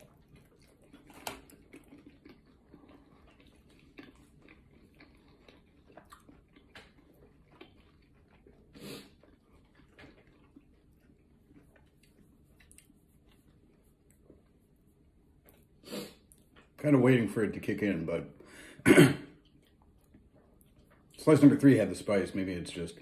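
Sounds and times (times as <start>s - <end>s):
mouth chewing clicks and squishes: 0.0s - 16.8s, 19.3s - 21.6s.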